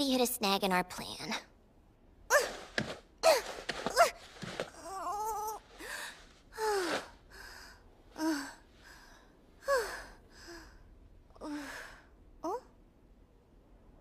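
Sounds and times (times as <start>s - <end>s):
girl panting and gasping: 2.3s - 10.8s.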